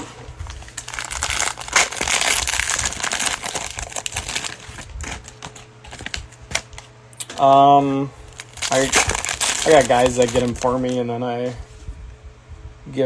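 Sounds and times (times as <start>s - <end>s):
plastic wrapper crinkling and ripping: 0.4s - 7.5s, 8.3s - 11.1s.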